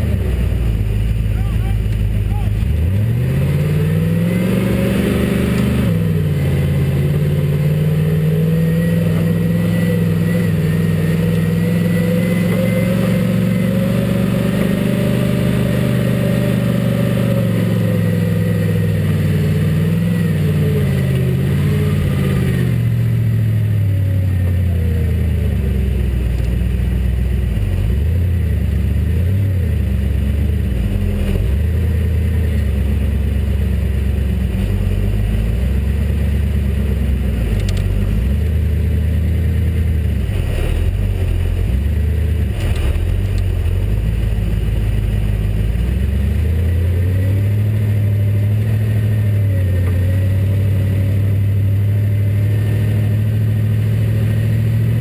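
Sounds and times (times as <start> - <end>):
vehicle engine revving: 0.0 - 55.0.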